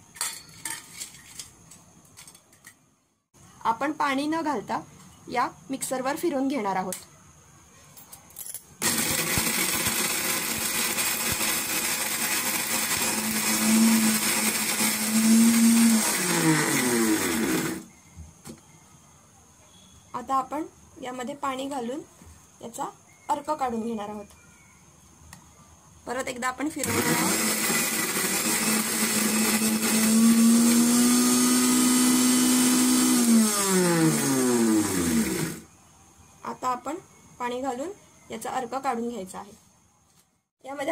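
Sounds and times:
mixer-grinder grinding shells: 0:08.8 - 0:17.9, 0:26.8 - 0:35.6.

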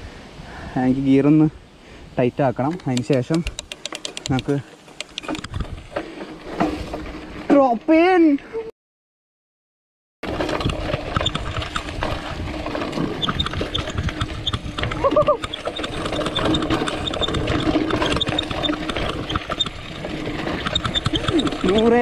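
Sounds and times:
mountain bike rattling over bumps: 0:02.8 - 0:08.4, 0:10.2 - 0:22.0.

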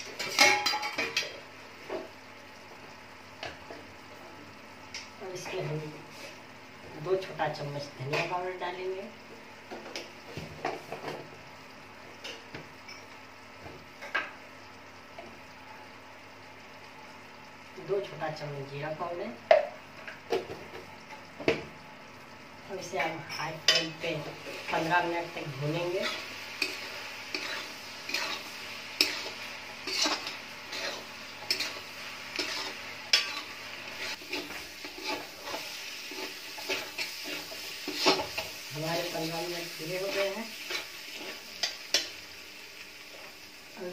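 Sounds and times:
masala sizzling: 0:00.0 - 0:43.9
metal spatula scraping pan: 0:25.8 - 0:38.5.

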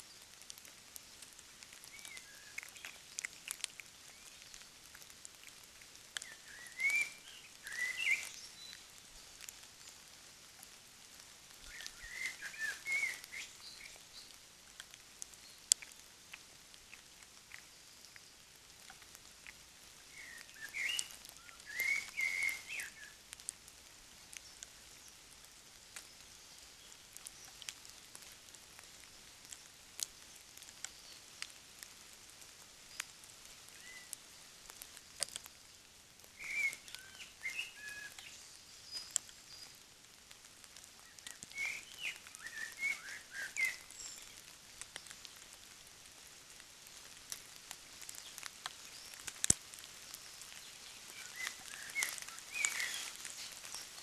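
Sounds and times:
faint clicks: 0:00.4 - 0:07.0, 0:13.3 - 0:21.9, 0:25.9 - 0:26.2, 0:27.1 - 0:31.9, 0:34.1 - 0:35.5, 0:38.9 - 0:39.8, 0:44.3 - 0:45.6, 0:47.0 - 0:54.0
bird singing warbling phrases: 0:06.2 - 0:08.8, 0:11.7 - 0:14.4, 0:20.2 - 0:23.2, 0:41.1 - 0:44.4, 0:50.6 - 0:54.0.

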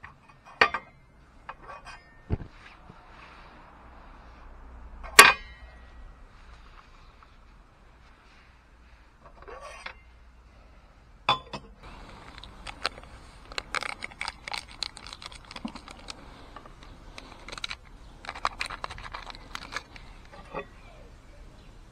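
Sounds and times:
plastic packet crinkling: 0:11.8 - 0:20.4.

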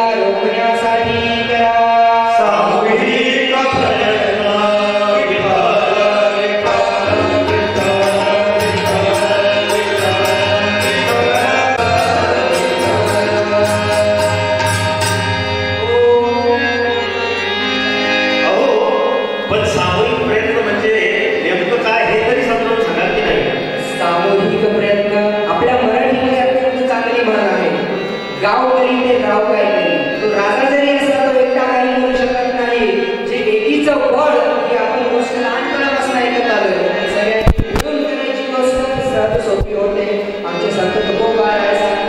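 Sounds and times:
men singing a chant-like melody: 0:01.0 - 0:14.8
instrumental accompaniment: 0:03.2 - 0:31.6
rapid high ticking percussion: 0:06.7 - 0:15.8.

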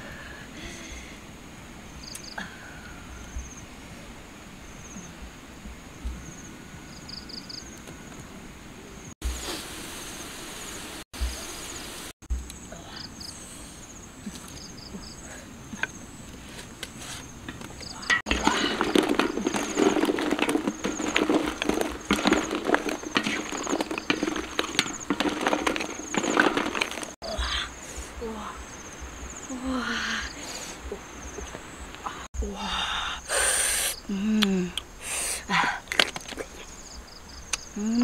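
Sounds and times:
crickets chirping: 0:01.8 - 0:38.0
eggs clattering in a wok: 0:17.5 - 0:27.2.

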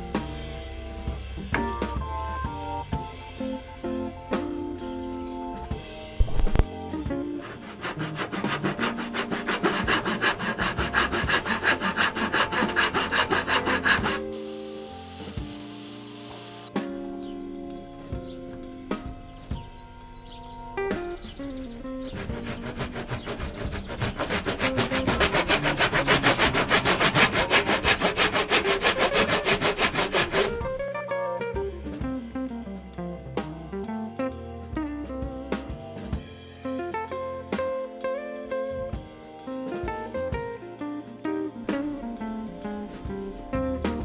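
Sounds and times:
hand saw cutting wood: 0:07.3 - 0:16.7, 0:21.3 - 0:30.8.

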